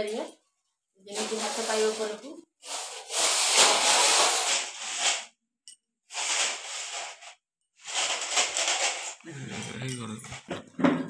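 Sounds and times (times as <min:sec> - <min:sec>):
broom swishing against wall: 0:01.1 - 0:05.3, 0:06.1 - 0:09.2.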